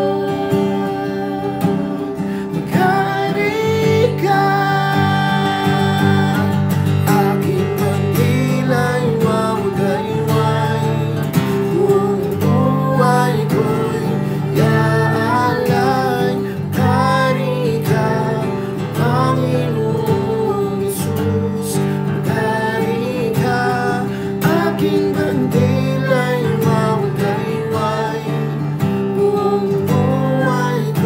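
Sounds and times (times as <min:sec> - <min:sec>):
person singing: 0:00.0 - 0:31.0
strummed acoustic guitar: 0:00.0 - 0:31.0.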